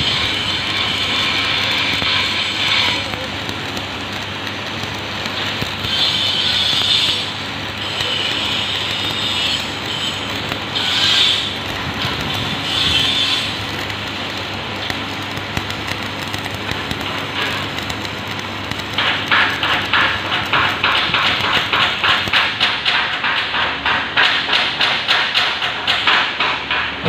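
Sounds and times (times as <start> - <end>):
welding arc crackling: 0.0 - 27.0.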